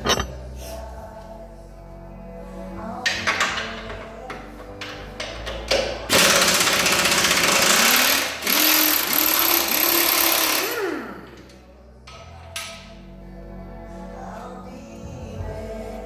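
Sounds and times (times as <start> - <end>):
power tool running hard: 6.1 - 11.3.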